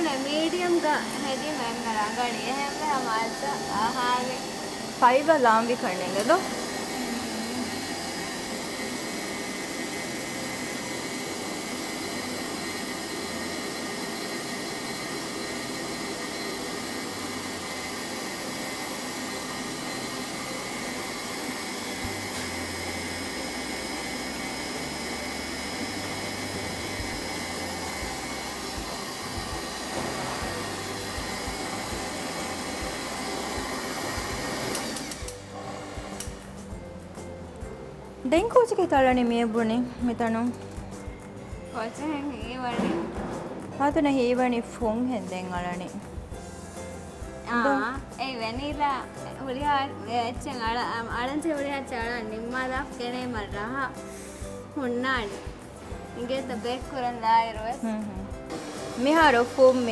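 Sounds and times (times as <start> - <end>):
stand mixer running: 0.0 - 36.6, 58.4 - 59.9.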